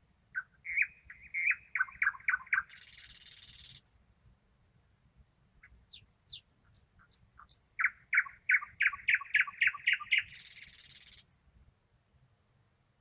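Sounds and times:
nightingale singing: 0.0 - 4.0, 5.2 - 11.4.

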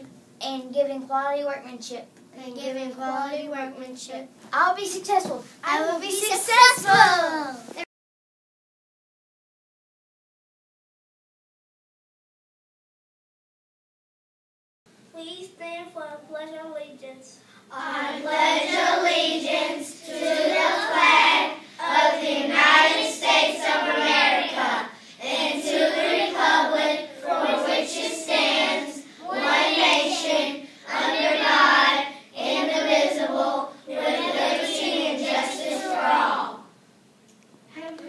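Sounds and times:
children reciting in unison: 17.7 - 36.7.

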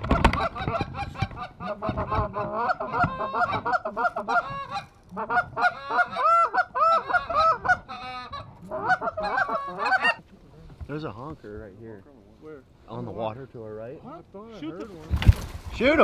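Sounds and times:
geese honking and clucking: 0.0 - 10.3.

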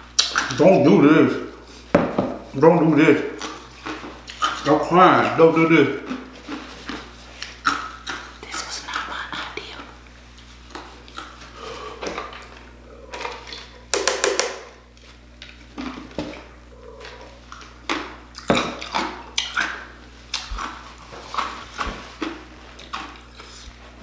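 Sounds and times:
man breathing hard: 11.5 - 12.2.

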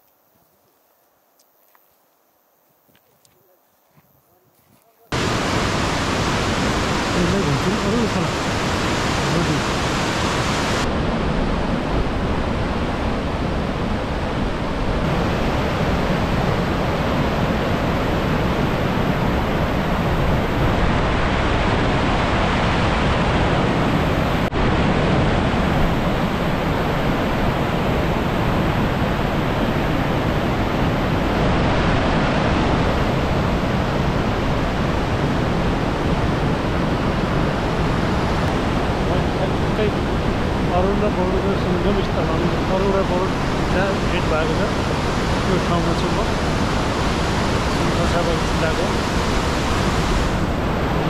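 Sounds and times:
river rapids rushing over boulders: 5.1 - 51.0.

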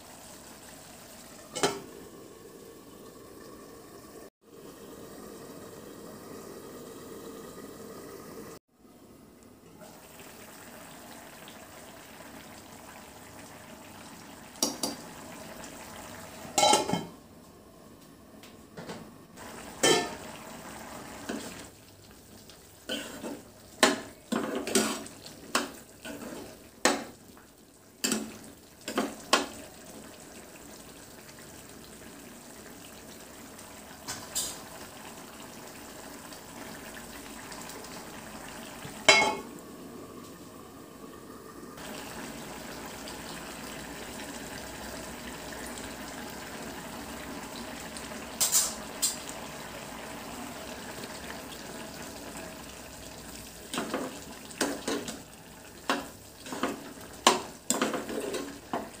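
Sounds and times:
metal lid clanking onto a pan: 19.8 - 20.2, 39.1 - 39.4.

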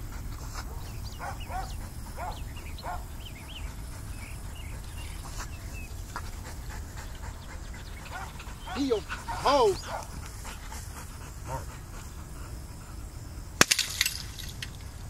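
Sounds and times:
dog whining: 8.1 - 10.0.

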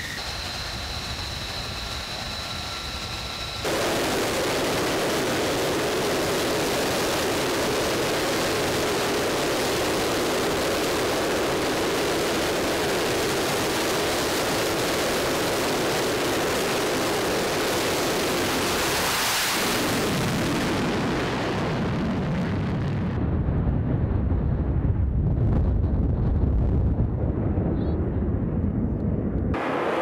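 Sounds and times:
jet engine running at high power: 0.0 - 23.1, 29.4 - 30.0
deep rumble of jet climbing: 0.0 - 30.0.

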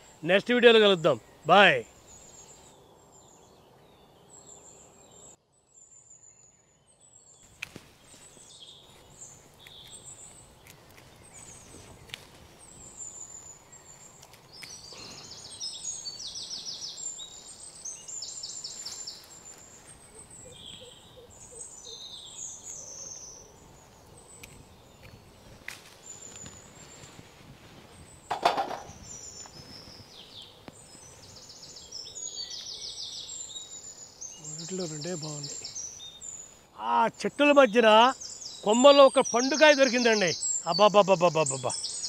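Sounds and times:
small birds chirping: 0.0 - 42.0
leaves and twigs rustling: 7.3 - 21.6, 22.2 - 33.6.

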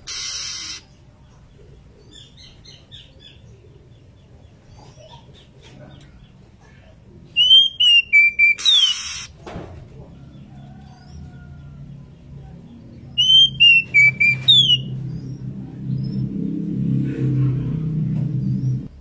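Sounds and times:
bird whistled calls: 0.0 - 0.8, 7.4 - 9.3, 13.2 - 15.0.

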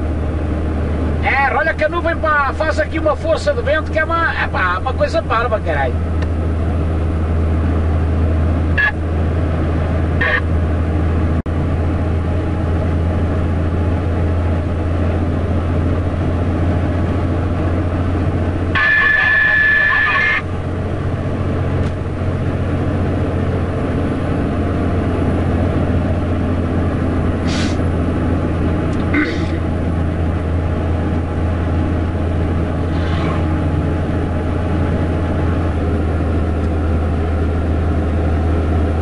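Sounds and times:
road noise: 0.0 - 39.0
truck diesel engine droning: 0.0 - 39.0
passing vehicles swishing: 20.5 - 39.0.

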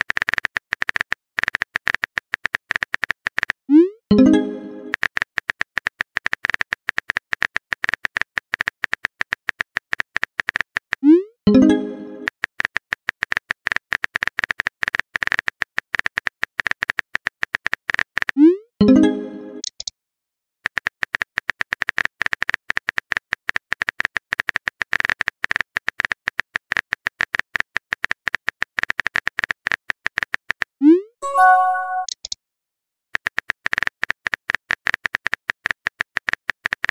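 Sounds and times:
message send chime: 4.1 - 4.9, 11.5 - 12.3, 18.8 - 19.6, 31.2 - 32.1
brief chime: 31.2 - 32.1
keyboard typing clicks: 31.2 - 32.4.

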